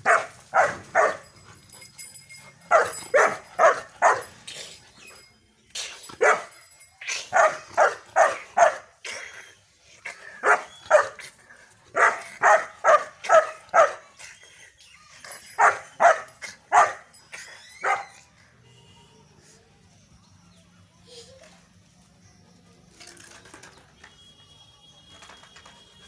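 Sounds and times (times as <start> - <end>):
puppy barking: 0.0 - 1.2, 2.7 - 4.3, 7.3 - 8.8, 10.4 - 11.2, 12.0 - 14.0, 15.6 - 17.1, 17.8 - 18.2.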